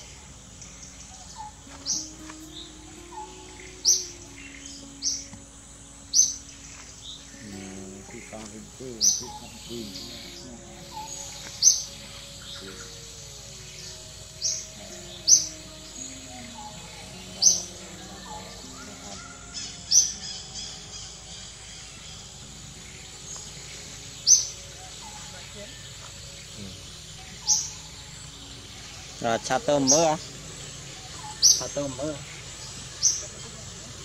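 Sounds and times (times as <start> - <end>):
fainter bird calls: 0.0 - 34.0
bird giving sharp high call: 1.1 - 5.3.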